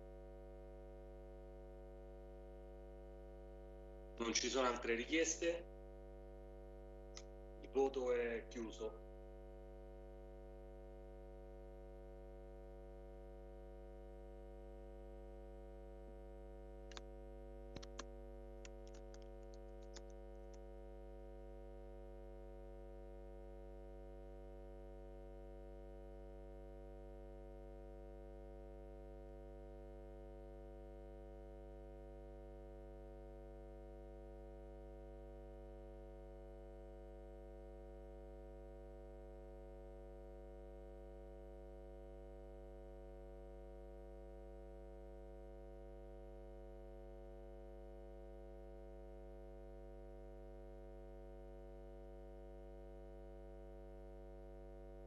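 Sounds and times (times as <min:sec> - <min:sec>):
faint electrical hum: 0:00.0 - 0:11.7, 0:13.7 - 0:23.5
faint clicks: 0:16.9 - 0:17.1, 0:17.7 - 0:20.6.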